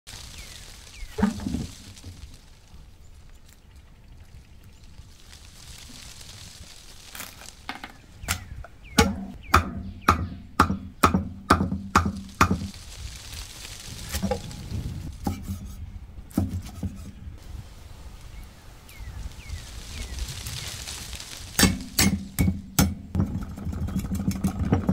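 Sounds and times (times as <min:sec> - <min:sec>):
cleaver chopping on wooden block: 0:09.0 - 0:12.7.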